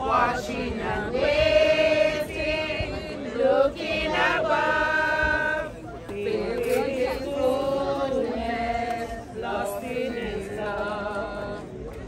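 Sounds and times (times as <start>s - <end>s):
group singing a hymn: 0.0s - 12.0s.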